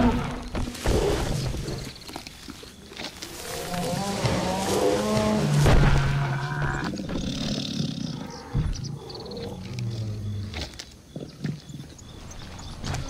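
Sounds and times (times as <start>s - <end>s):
animal roars and growls: 3.2s - 10.9s.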